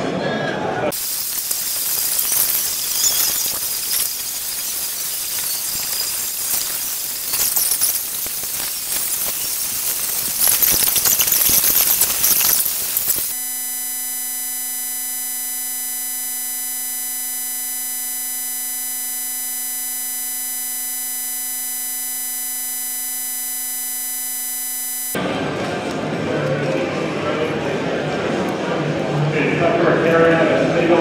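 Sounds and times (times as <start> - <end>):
loud electronic buzz tone: 0.9 - 25.2
noisy hall ambience: 25.2 - 31.0.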